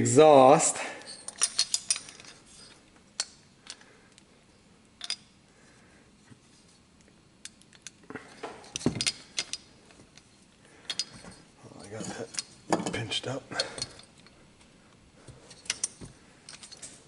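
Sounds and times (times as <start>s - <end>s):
metallic clicks and clinks: 1.0s - 4.2s, 5.0s - 5.3s, 7.4s - 14.4s, 15.5s - 17.0s.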